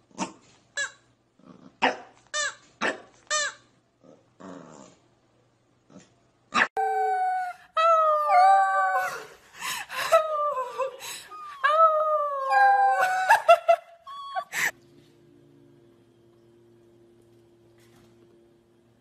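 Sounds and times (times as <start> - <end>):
puppy howling and yipping: 11.3 - 13.5, 14.1 - 14.7.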